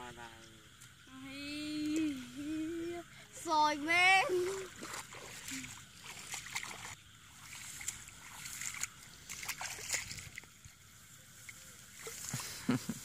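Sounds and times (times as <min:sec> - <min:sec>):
shallow water splashing: 0:04.1 - 0:13.0.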